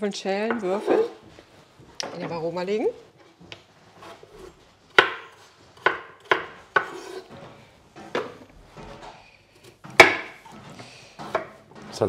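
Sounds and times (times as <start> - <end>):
knife chopping on wooden board: 4.0 - 7.3, 9.9 - 10.5, 11.2 - 11.6.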